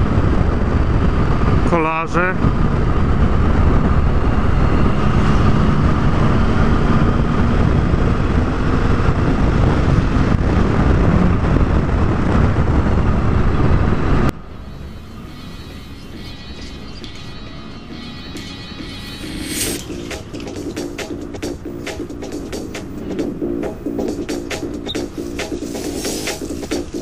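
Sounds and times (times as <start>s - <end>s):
wind noise on microphone: 0.0s - 14.4s
motorcycle engine running: 2.3s - 13.6s, 19.5s - 27.0s
background music: 14.7s - 27.0s.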